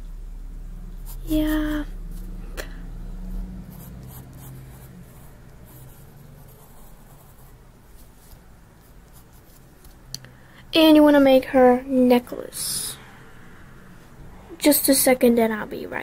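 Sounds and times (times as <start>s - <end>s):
low steady hum: 0.0s - 16.0s
pencil scratching on paper: 3.7s - 10.0s.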